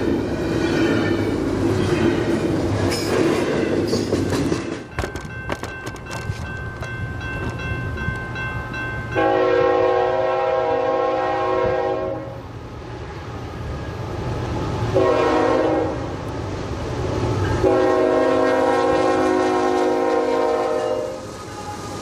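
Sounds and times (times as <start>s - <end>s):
locomotive air horn blasts: 9.1s - 12.5s, 14.9s - 16.1s, 17.6s - 21.9s.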